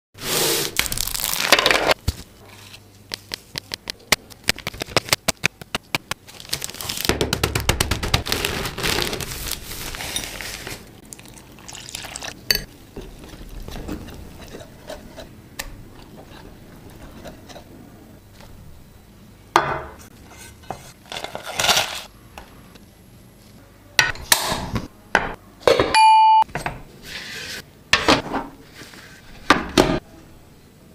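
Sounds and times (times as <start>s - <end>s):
short steady beep: 26.0s - 26.5s.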